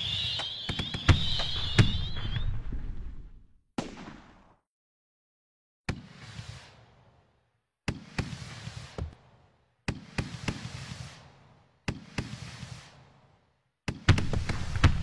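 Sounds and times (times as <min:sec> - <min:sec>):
small fireworks pops: 0:00.0 - 0:02.8, 0:05.9 - 0:06.9, 0:07.9 - 0:09.2, 0:09.9 - 0:13.3, 0:13.9 - 0:15.0
fireworks crackle: 0:00.0 - 0:03.2, 0:06.0 - 0:07.0, 0:08.1 - 0:09.2, 0:10.1 - 0:13.3, 0:14.1 - 0:15.0
fireworks bangs: 0:00.0 - 0:04.5, 0:07.9 - 0:13.2, 0:13.9 - 0:15.0.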